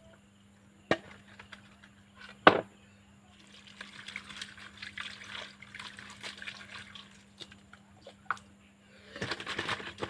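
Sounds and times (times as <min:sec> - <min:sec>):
hose water splashing into bowl: 0:03.3 - 0:07.7.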